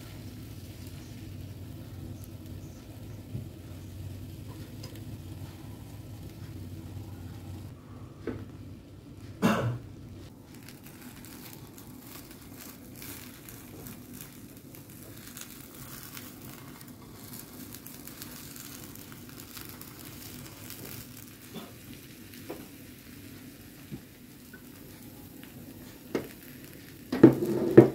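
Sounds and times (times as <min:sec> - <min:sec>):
egg sizzling in a pan: 0:00.0 - 0:07.8, 0:09.9 - 0:27.9
utensils scraping and tapping pan: 0:27.1 - 0:27.9.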